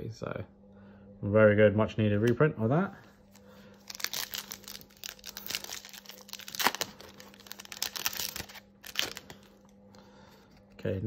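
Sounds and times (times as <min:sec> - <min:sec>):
foil pack crinkling: 0:03.3 - 0:09.7.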